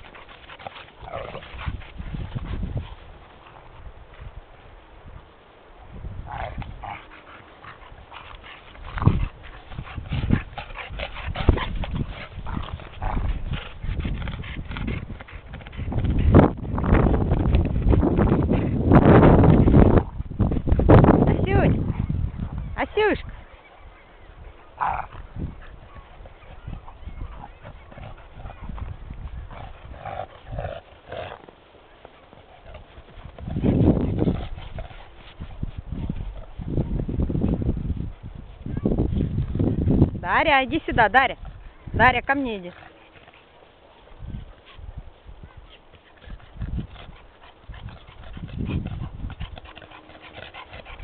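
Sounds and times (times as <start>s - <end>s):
dogs scuffling in snow: 0.0s - 3.7s
dog vocal sounds: 6.3s - 17.2s, 21.3s - 37.1s, 44.6s - 51.0s.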